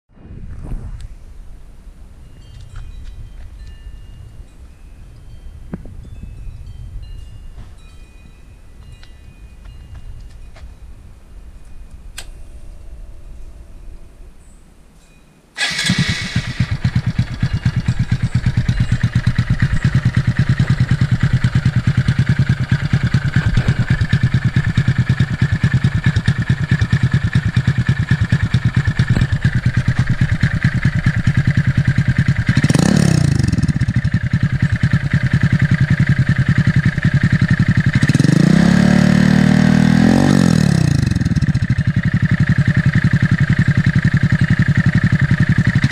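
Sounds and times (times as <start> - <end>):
motorcycle engine idling and revving: 15.6 - 45.9.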